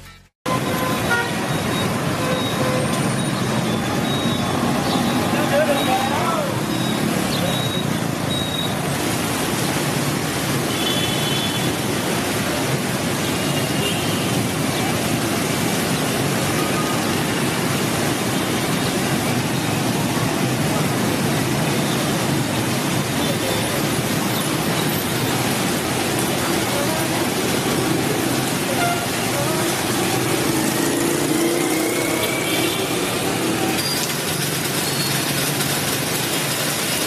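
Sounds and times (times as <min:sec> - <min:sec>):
motorbike traffic: 0:00.0 - 0:37.0
rain on a street: 0:00.5 - 0:37.0.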